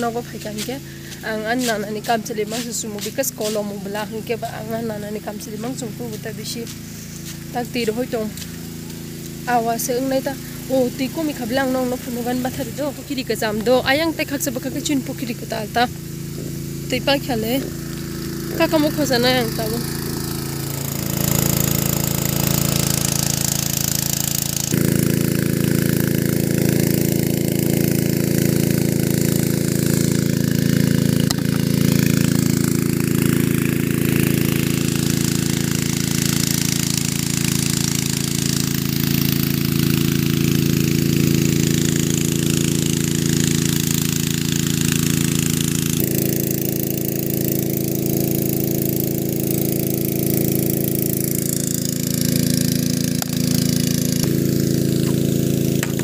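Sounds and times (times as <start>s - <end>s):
small petrol engine running: 0.0s - 56.0s.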